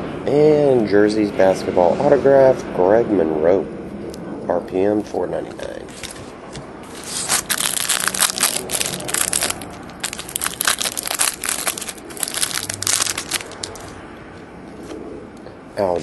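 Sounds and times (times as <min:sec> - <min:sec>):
plastic sleeve crinkling: 0:05.9 - 0:14.0.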